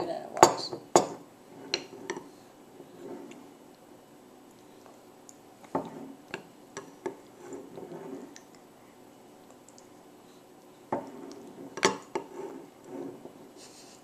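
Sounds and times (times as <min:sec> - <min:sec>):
toddler eating: 0:04.5 - 0:13.4.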